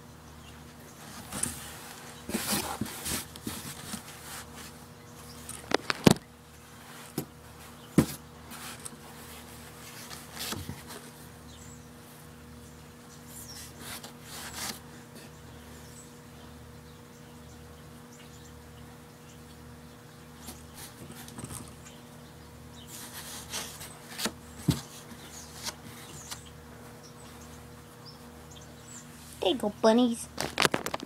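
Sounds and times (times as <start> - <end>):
low steady hum: 0.0 - 31.0
cloth rustling in cardboard box: 1.0 - 4.8.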